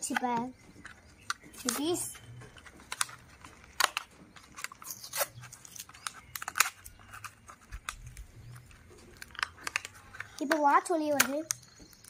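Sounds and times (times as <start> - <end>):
wrapper crackling and tearing: 2.9 - 12.0.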